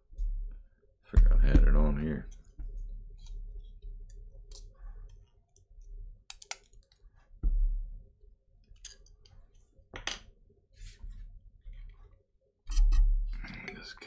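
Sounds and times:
plastic parts clicking: 6.3 - 7.0.

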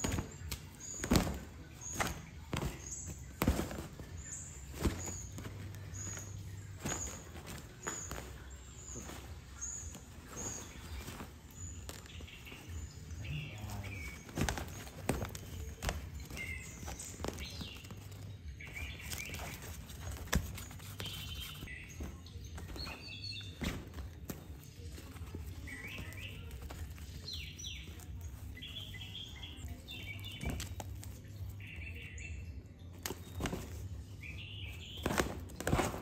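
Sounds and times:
cat rustling in fabric tunnel: 0.0 - 32.2.

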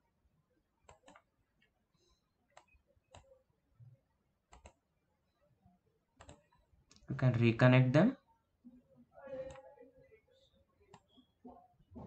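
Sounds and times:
computer mouse clicks: 0.8 - 1.7, 2.5 - 3.4, 4.5 - 4.8, 6.2 - 7.1, 9.4 - 9.6, 10.9 - 11.2.

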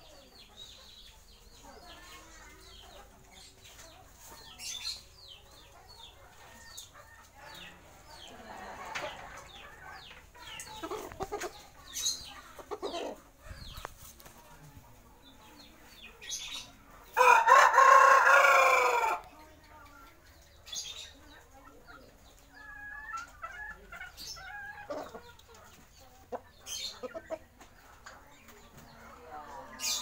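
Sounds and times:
chickens clucking: 0.0 - 30.0
rooster crowing loudly: 17.2 - 19.2.

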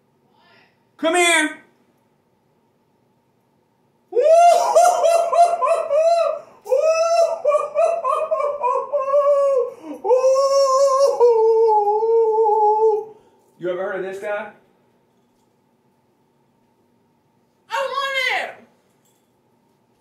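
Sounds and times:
man yelling whooping cries: 4.1 - 13.1.

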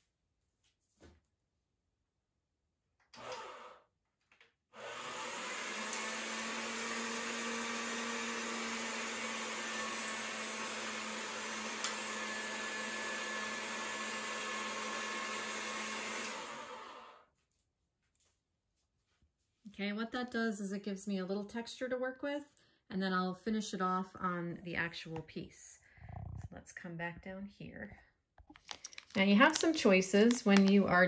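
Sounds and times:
pasta machine motor hum: 3.2 - 3.8, 4.8 - 17.2.

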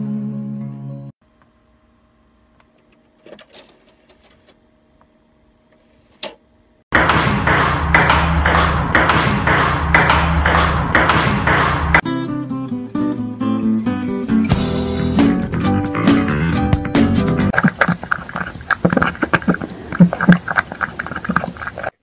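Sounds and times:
faint steady hum: 1.2 - 6.8
fast rhythmic beat: 6.9 - 12.0
guitar music: 10.8 - 17.5.

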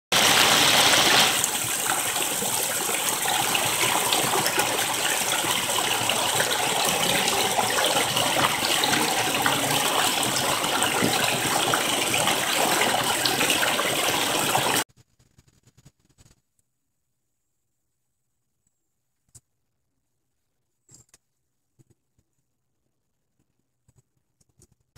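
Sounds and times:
waterfall rushing over rocks: 0.1 - 14.8.

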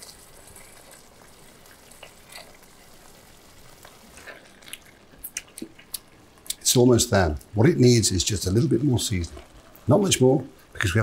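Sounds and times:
sauce simmering with pops: 0.0 - 11.0.

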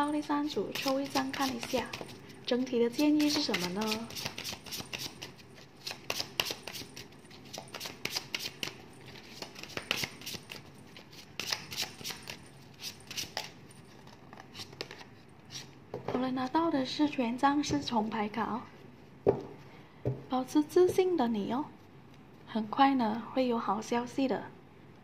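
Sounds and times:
cards being shuffled: 0.6 - 2.3, 3.0 - 15.7.

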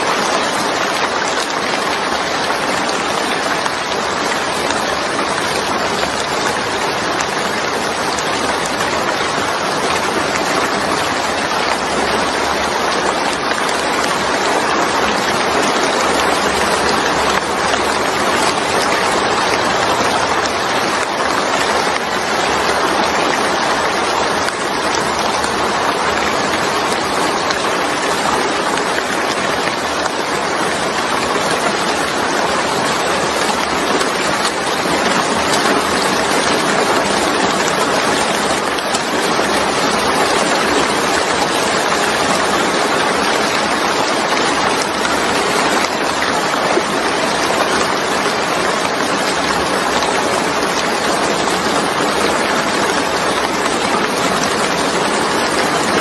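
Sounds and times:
rain pouring on wet surface: 0.0 - 56.0.

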